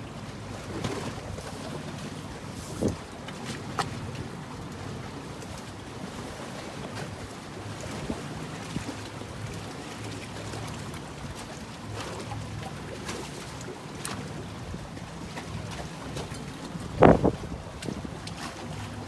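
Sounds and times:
wind on microphone: 2.6 - 3.1, 16.8 - 18.2.

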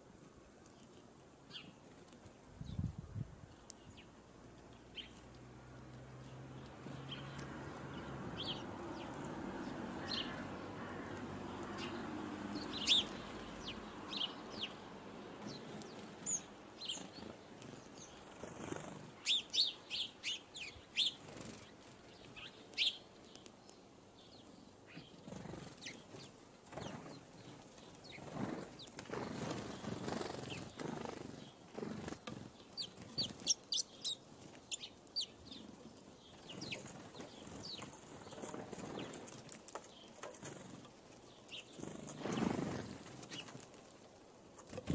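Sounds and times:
songbirds chirping: 0.0 - 44.9
birds' wings fluttering: 15.4 - 19.6, 21.0 - 22.5, 25.0 - 34.8, 35.5 - 44.9.

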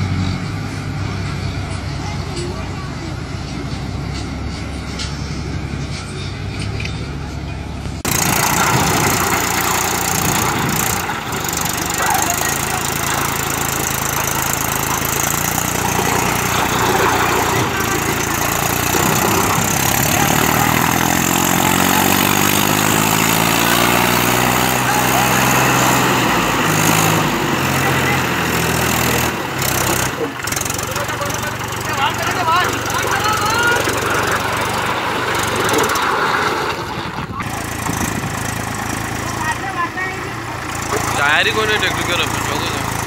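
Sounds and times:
tractor diesel engine under load: 0.0 - 43.0.

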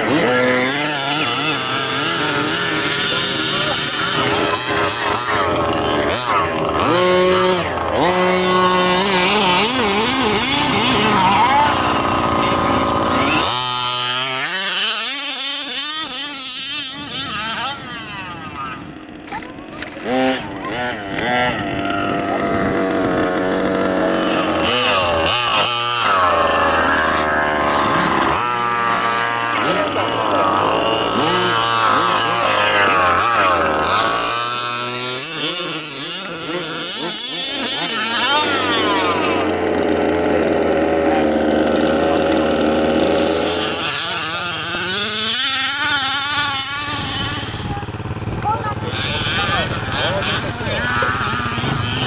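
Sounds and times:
small engine revving: 0.0 - 52.0
small engine steady note: 0.0 - 52.0.

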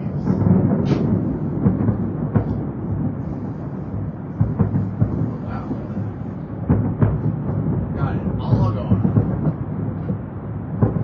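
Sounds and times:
distant fireworks rumble: 0.0 - 11.0
sharp firework bangs: 0.0 - 11.0.

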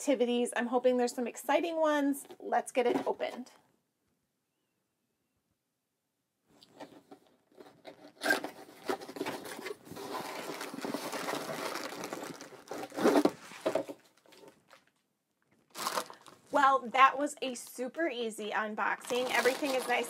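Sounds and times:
cardboard flap tearing: 7.8 - 14.0
plastic bag crinkling: 8.2 - 16.6, 18.9 - 20.0.

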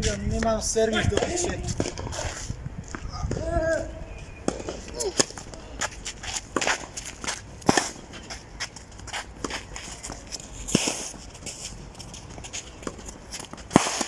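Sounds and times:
footsteps on clay: 4.5 - 14.0
racket hitting tennis ball: 4.5 - 14.0.

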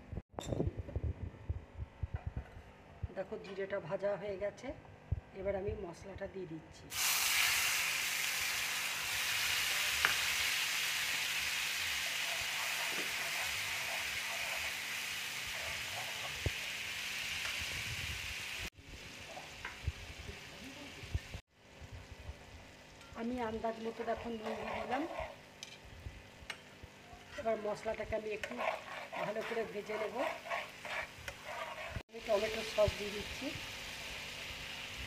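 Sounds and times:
paste sizzling in hot oil: 6.9 - 21.4, 22.5 - 25.5, 27.2 - 35.0.

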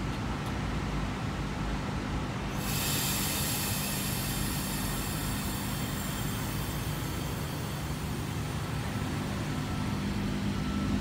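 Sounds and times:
electric train low hum: 0.0 - 11.0
train hiss: 2.5 - 9.2.

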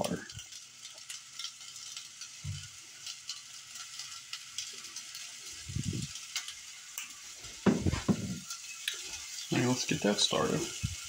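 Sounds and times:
low bumps: 7.7 - 8.4.

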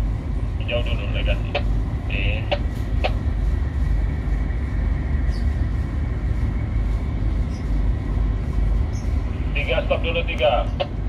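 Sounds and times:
faint high whine: 0.0 - 11.0
ship engine deep rumble: 0.0 - 11.0.

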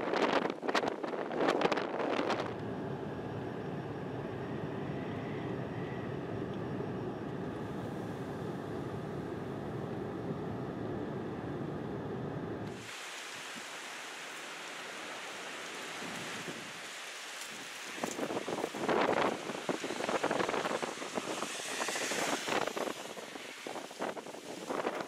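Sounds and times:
wind gusts buffeting microphone: 0.0 - 3.2, 15.4 - 25.0
steady rush of wind: 0.0 - 25.0
faint hum: 2.4 - 12.7.

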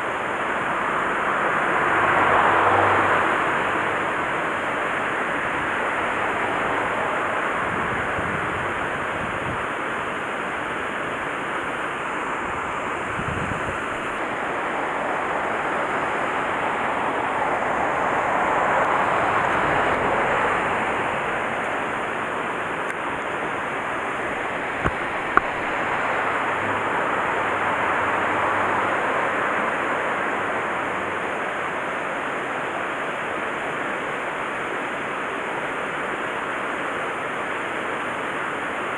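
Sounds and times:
water rushing into a channel: 0.0 - 38.9.

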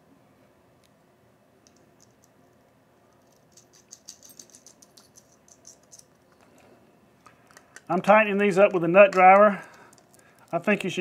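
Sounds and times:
small metallic clicks: 1.6 - 2.4, 3.1 - 8.0, 9.1 - 10.6.

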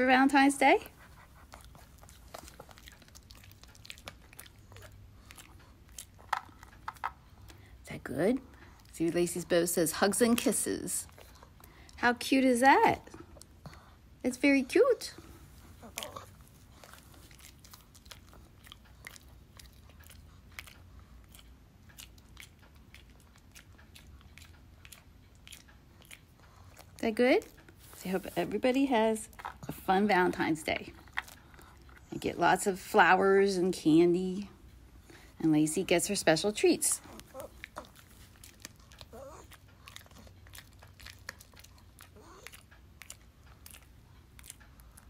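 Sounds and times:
dog crunching a hard treat: 1.1 - 7.6, 15.8 - 27.0, 30.9 - 32.1, 37.1 - 45.0.

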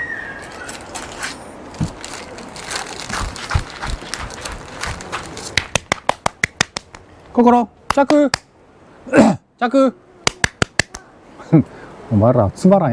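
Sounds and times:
plastic bags crinkling: 0.8 - 5.6.

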